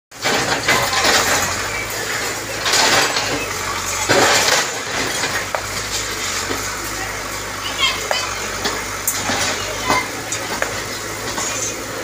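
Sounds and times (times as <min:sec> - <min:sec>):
diesel engine running: 0:00.1 - 0:12.0
bricks crashing down: 0:00.2 - 0:06.1.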